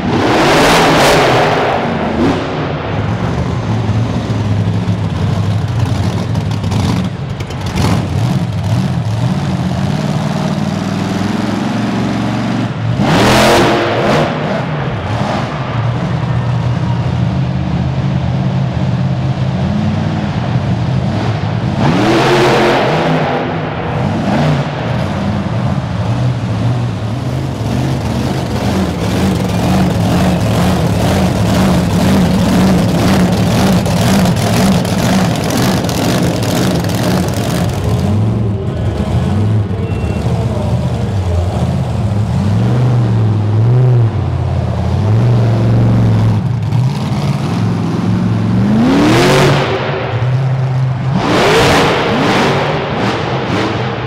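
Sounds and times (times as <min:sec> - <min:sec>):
monster truck engines revving: 0:00.0 - 0:54.0.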